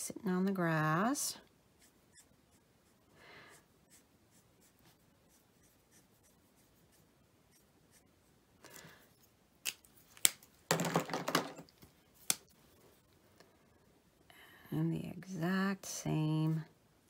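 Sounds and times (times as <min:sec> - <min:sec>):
marker scratching on cardstock: 0:03.8 - 0:08.1
markers clattering: 0:09.6 - 0:11.7.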